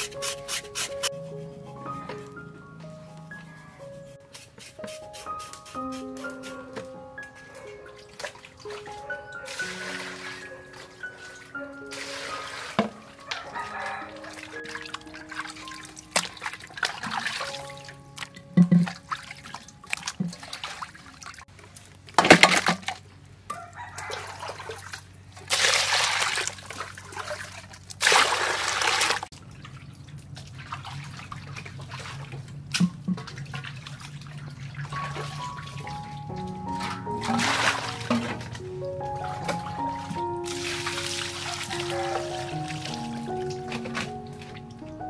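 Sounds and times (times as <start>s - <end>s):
soft background music: 0.0s - 21.1s, 34.8s - 45.0s
water splashing in a basin: 7.5s - 23.0s, 24.0s - 38.6s, 39.2s - 44.6s.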